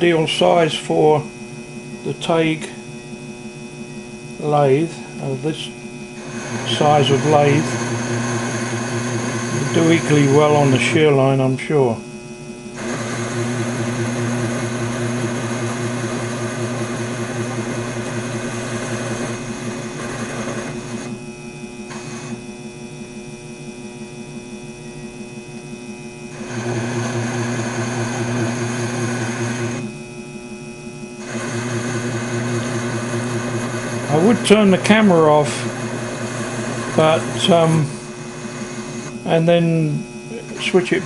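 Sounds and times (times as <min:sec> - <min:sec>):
lathe motor hum: 0:00.0 - 0:12.0, 0:12.6 - 0:24.6, 0:25.2 - 0:30.1, 0:31.2 - 0:41.0
tool cutting metal: 0:06.2 - 0:10.8, 0:21.9 - 0:22.4, 0:26.4 - 0:29.9, 0:31.2 - 0:39.2.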